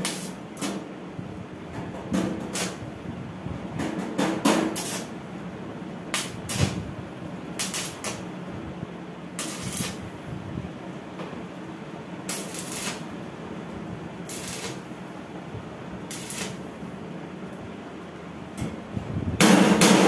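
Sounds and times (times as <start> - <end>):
arc welding crackling bursts: 0.0 - 0.8, 2.4 - 2.9, 4.6 - 5.2, 6.1 - 8.3, 9.4 - 10.2, 12.2 - 13.2, 14.2 - 15.1, 16.0 - 16.8
steady low hum: 0.0 - 20.0.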